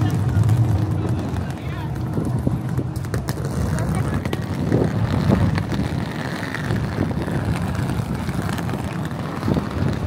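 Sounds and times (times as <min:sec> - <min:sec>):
low uneven rumble: 0:00.0 - 0:10.0
wind buffeting microphone: 0:00.0 - 0:10.0.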